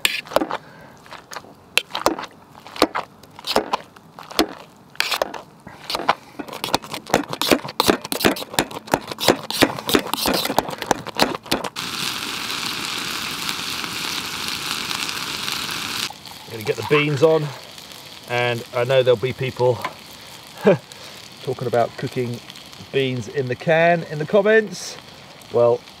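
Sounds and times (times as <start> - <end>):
metal utensil scraping metal pot: 5.0 - 11.4, 16.4 - 17.2
sausages sizzling in a pan: 7.2 - 26.0.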